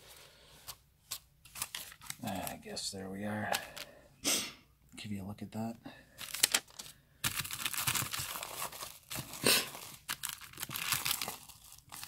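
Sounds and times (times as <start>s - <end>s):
bubble wrap crinkling: 6.2s - 12.0s.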